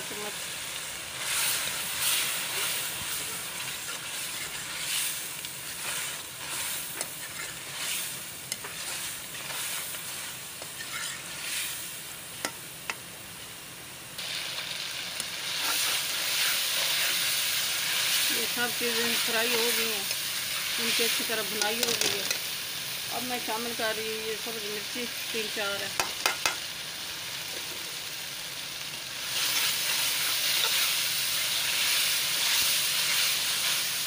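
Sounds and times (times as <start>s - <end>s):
vegetables sizzling in oil: 0.0s - 34.0s
spatula stirring in wok: 0.4s - 13.0s, 15.4s - 22.4s, 29.2s - 34.0s
spatula clicking on pan: 26.0s - 26.6s.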